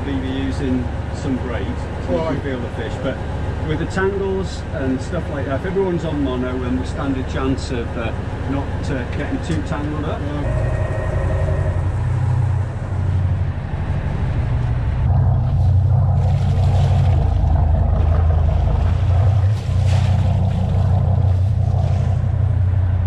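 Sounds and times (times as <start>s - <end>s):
boat engine droning: 0.0s - 23.0s
water churning along hull: 0.0s - 23.0s.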